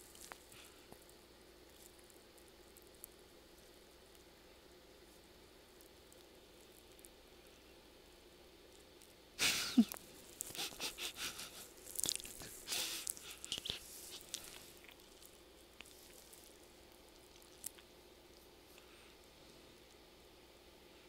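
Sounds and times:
man laughing breathily: 9.4 - 13.9.

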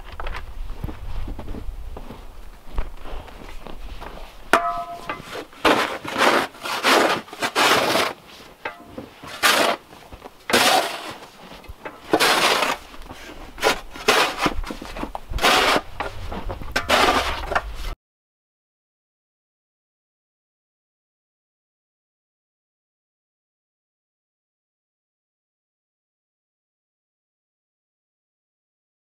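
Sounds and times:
snow shovel scraping wooden deck: 3.0 - 18.0.

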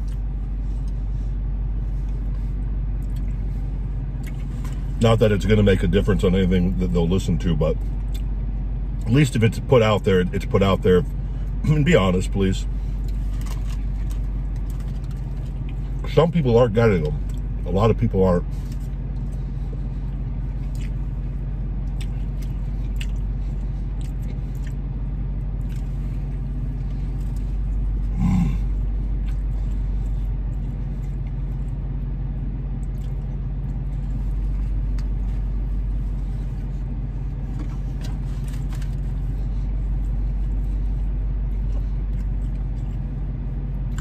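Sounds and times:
man chewing food: 0.0 - 1.1, 1.8 - 4.9, 7.8 - 9.0, 13.0 - 16.1, 17.1 - 17.6, 18.6 - 31.9, 32.6 - 44.0
car engine idling: 0.0 - 44.0
short vocal sound: 28.1 - 28.8.

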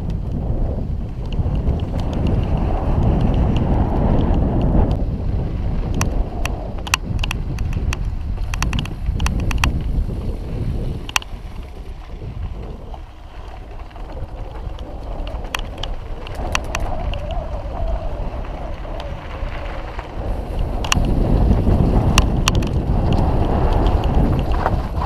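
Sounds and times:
bike clicks and rattles: 0.0 - 25.0
tyre rumble: 0.0 - 25.0
wind buffeting microphone: 0.0 - 25.0
wavering whine: 11.0 - 21.1.

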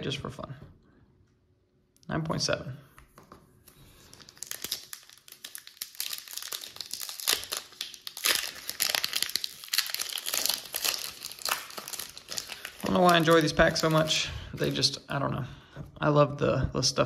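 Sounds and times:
foil wrapper crinkling and tearing: 3.7 - 14.9.

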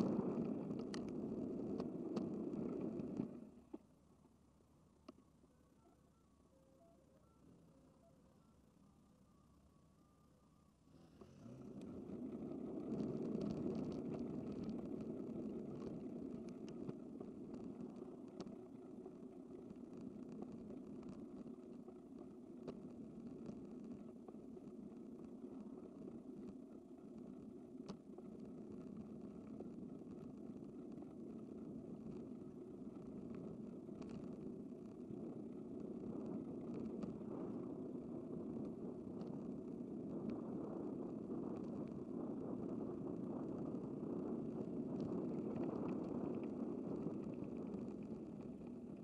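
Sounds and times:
faint ticks: 0.0 - 3.9, 11.0 - 49.0
wind on microphone: 28.3 - 49.0.

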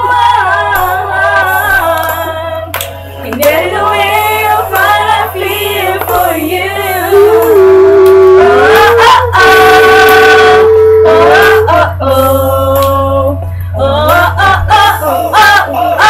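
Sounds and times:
steady low hum: 0.0 - 16.0
two women singing: 0.0 - 16.0.

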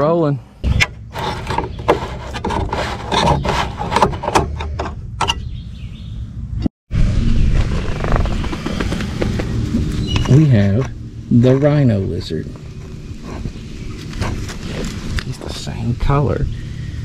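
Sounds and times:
rustling: 7.5 - 10.6, 12.4 - 15.4.

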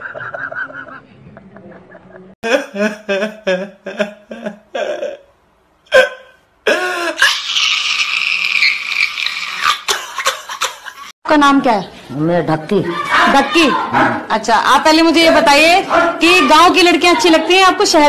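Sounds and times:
man crying loudly: 2.4 - 5.3.

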